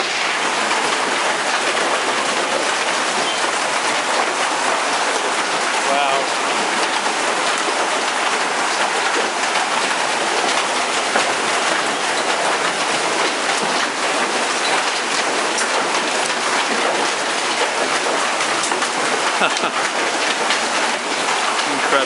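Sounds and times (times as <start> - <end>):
rain and hail pelting down: 0.0 - 22.0.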